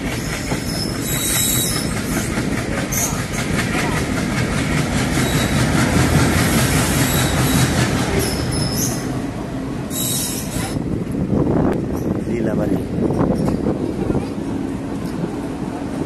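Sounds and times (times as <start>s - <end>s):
clatter over rail joints: 0.0s - 9.0s
train wheels rumbling on rails: 0.0s - 16.0s
high wheel squeals: 0.2s - 3.2s, 5.2s - 5.8s, 6.4s - 9.1s, 9.9s - 10.8s.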